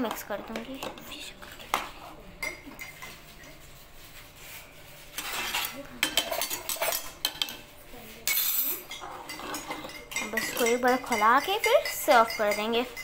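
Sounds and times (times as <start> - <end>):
metal ladle stirring in saucepan: 4.9 - 7.6, 8.2 - 13.0.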